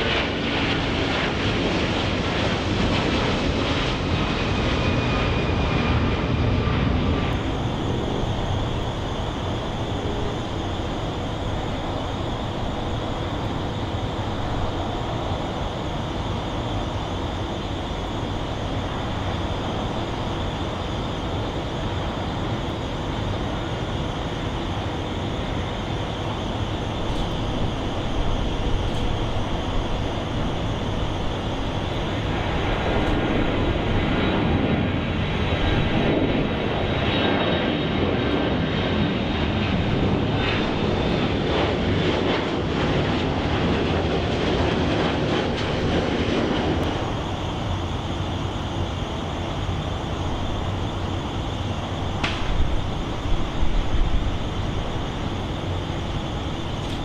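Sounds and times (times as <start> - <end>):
high engine whine: 0.0 - 57.0
jet engines roaring: 0.0 - 57.0.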